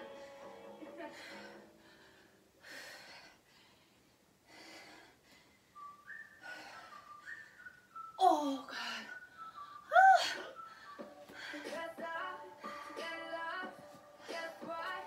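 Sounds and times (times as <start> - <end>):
person breathing hard: 1.2 - 5.7
person whistling a tune: 5.8 - 11.9.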